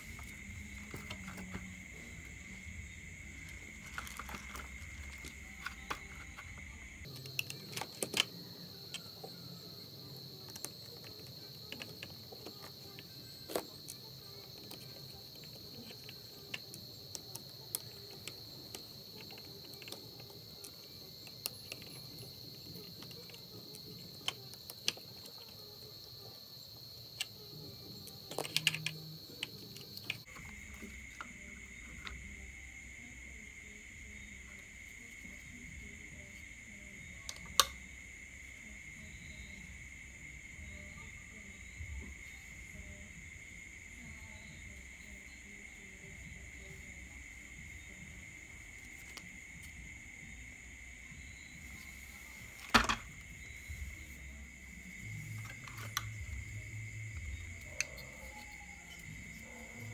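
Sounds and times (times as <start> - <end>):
plastic parts clicking: 3.4 - 9.4, 10.4 - 25.8, 28.0 - 30.5.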